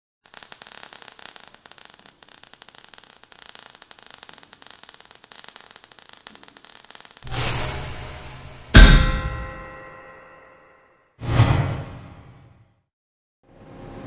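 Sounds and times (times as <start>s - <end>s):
burning sparks crackling: 0.2s - 10.1s.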